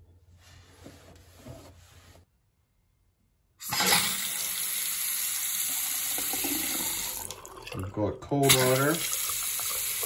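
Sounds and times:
faucet water running into sink: 0:03.6 - 0:10.0.

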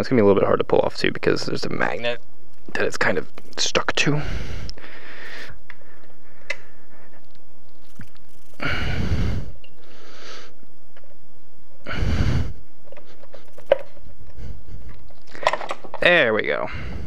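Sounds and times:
person breathing hard: 0:04.1 - 0:07.2, 0:08.4 - 0:10.6, 0:11.8 - 0:15.6, 0:16.6 - 0:17.0.

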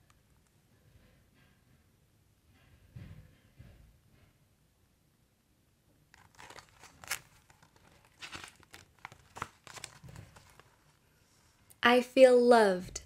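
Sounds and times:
paper page rustling: 0:06.1 - 0:11.0.

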